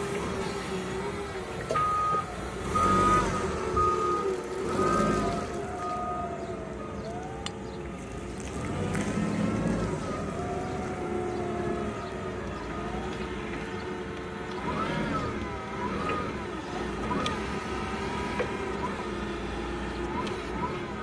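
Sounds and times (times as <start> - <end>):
forklift engine running: 0.0 - 21.0.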